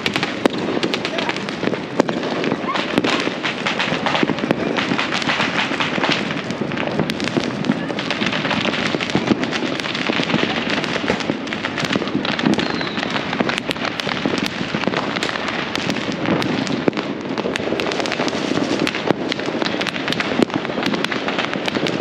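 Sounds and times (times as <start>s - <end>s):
fireworks and firecrackers crackling: 0.0s - 22.0s.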